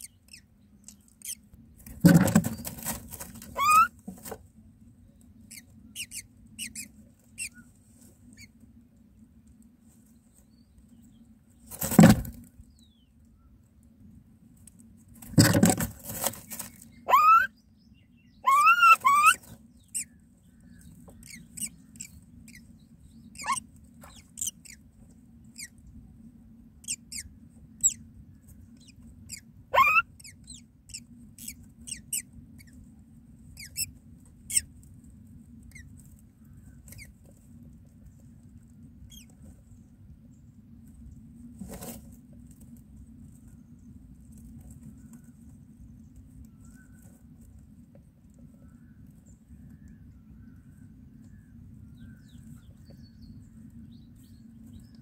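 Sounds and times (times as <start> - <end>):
low steady hum: 0.0 - 55.0
scratches: 1.2 - 4.4, 14.7 - 16.9, 41.5 - 43.6
rustling: 1.2 - 4.5, 14.6 - 17.1, 40.8 - 48.5
bird chirps: 16.9 - 24.8, 28.8 - 32.7.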